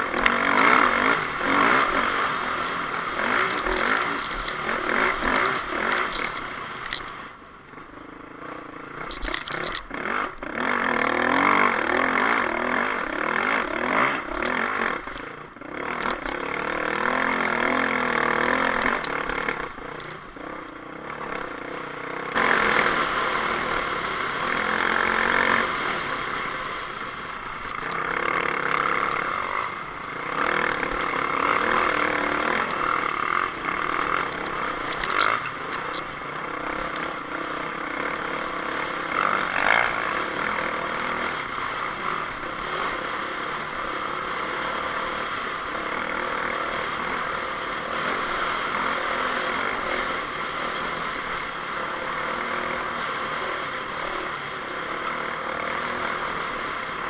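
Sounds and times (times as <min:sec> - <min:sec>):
sharp clicks: 0:00.0 - 0:07.8, 0:09.0 - 0:09.9, 0:10.8 - 0:20.8, 0:24.1 - 0:43.3
dirt bike engine revving: 0:00.0 - 0:57.0.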